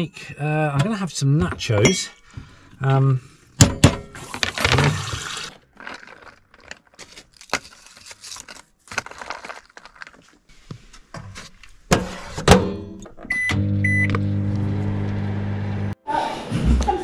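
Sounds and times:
plastic bag rustling: 4.2s - 11.6s
short keypad beeps: 13.3s - 14.1s
microwave oven humming: 13.4s - 16.0s.

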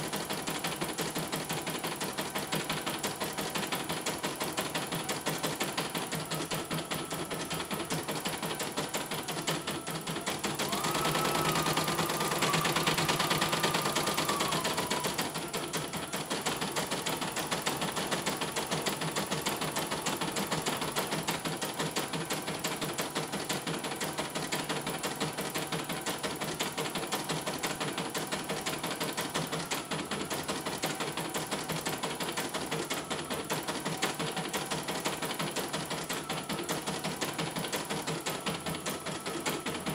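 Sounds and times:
steady machine whine: 0.0s - 23.4s
embroidery machine stitching: 0.0s - 39.9s.

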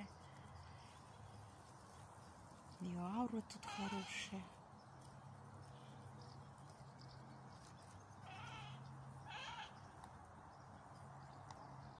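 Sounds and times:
short animal calls: 8.2s - 9.8s.

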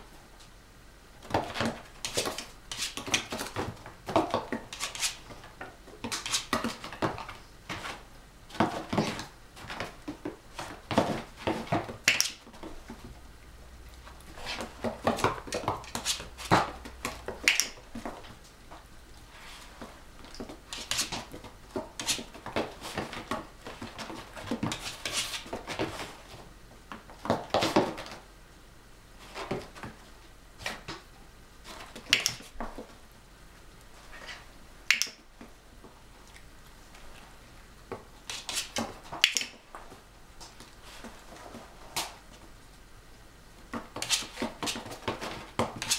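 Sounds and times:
dog claws clicking on floor: 1.3s - 7.9s, 8.6s - 13.0s, 14.4s - 18.3s, 20.2s - 26.0s, 31.7s - 32.8s, 38.3s - 40.7s, 43.8s - 45.9s.

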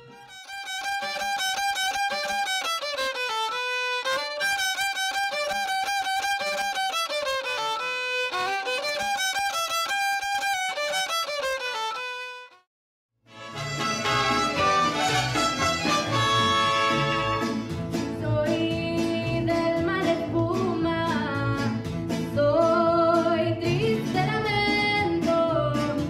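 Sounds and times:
solo violin melody: 0.0s - 12.7s, 13.3s - 17.7s.

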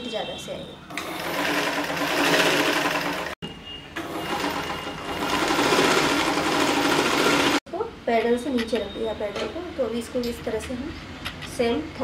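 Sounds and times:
sewing machine running: 0.9s - 3.4s, 4.0s - 7.6s.

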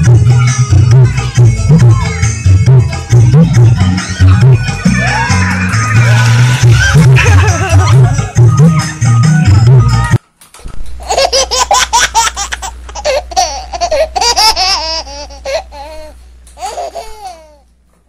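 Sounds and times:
low steady hum: 0.0s - 18.0s
children laughing: 4.0s - 9.1s, 11.0s - 16.0s.

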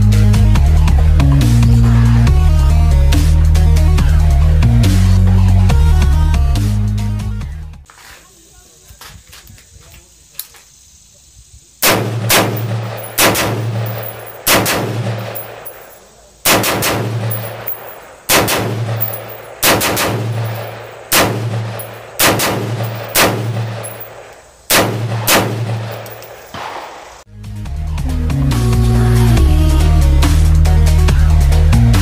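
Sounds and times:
rifle shots: 11.8s - 27.2s
ringing gunshot echo: 11.8s - 27.2s.

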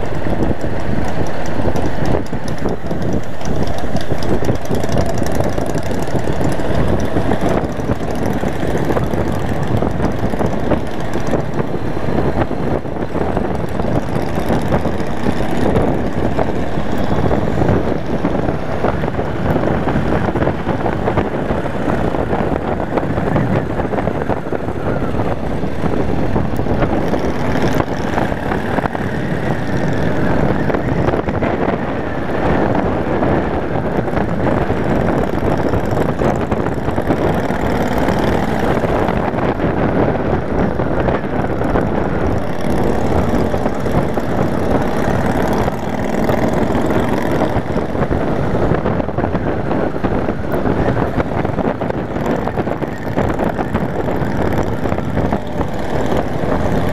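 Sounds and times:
motorcycle engine running: 0.0s - 56.9s
wind noise on microphone: 0.0s - 56.9s.

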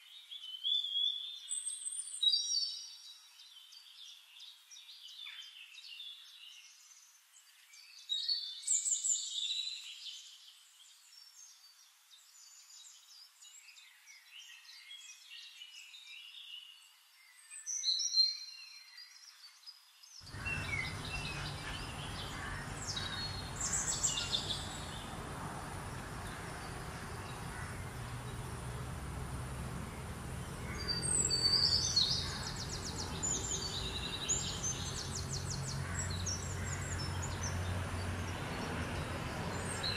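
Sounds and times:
birds chirping and calling: 20.3s - 39.9s.

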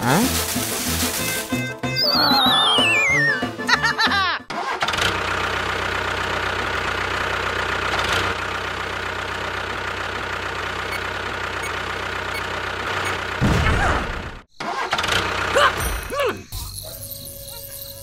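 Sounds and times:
swooping sound effect tones: 1.8s - 3.7s.

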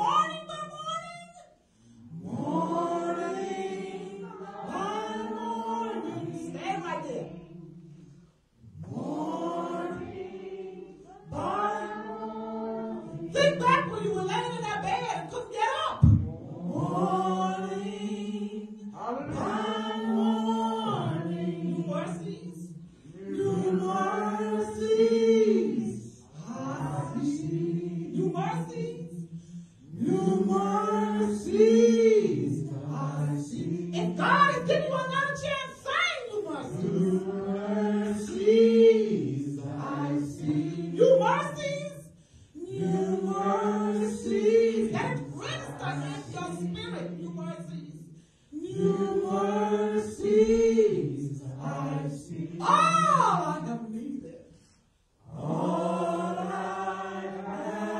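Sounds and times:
short breaths: 42.1s - 42.6s.

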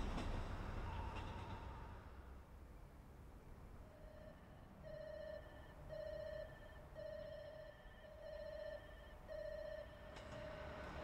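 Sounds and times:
railway warning signal beeping: 3.9s - 10.5s.

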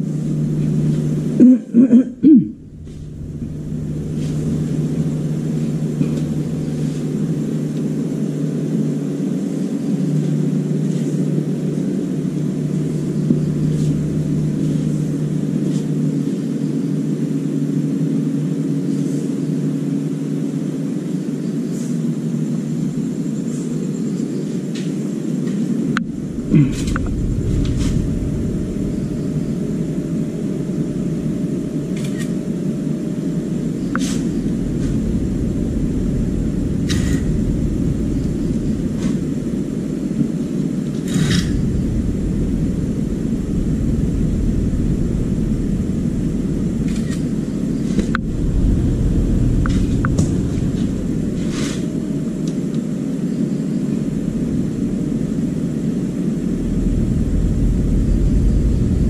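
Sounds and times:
deep noisy rumble: 0.0s - 24.3s, 25.0s - 59.0s
low machine hum: 0.0s - 59.0s.

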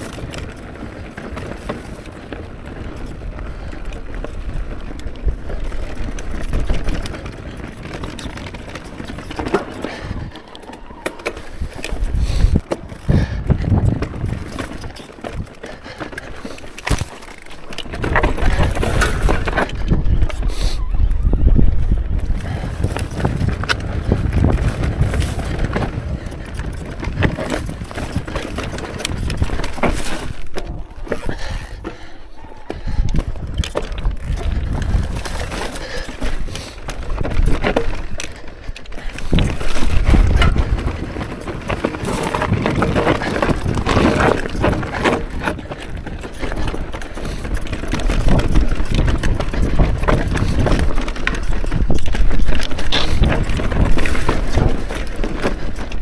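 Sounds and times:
bike chain and frame rattling: 0.0s - 56.0s
tyres crunching over stones: 33.1s - 56.0s.

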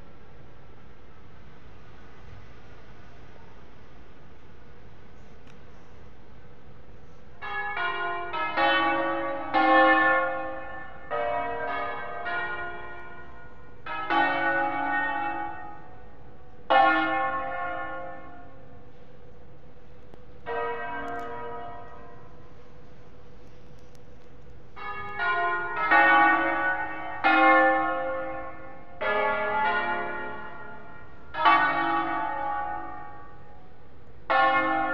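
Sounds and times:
church bells ringing: 7.4s - 23.4s, 24.7s - 34.9s.

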